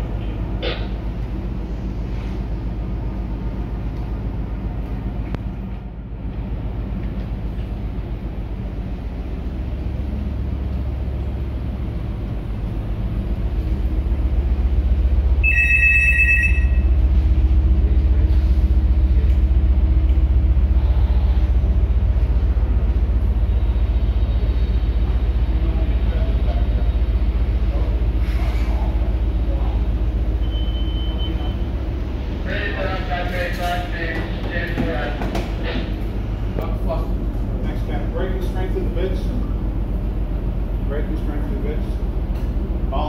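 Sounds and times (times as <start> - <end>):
ship machinery rumbling: 0.0 - 43.0
short electronic beep: 15.4 - 17.0, 30.4 - 31.6.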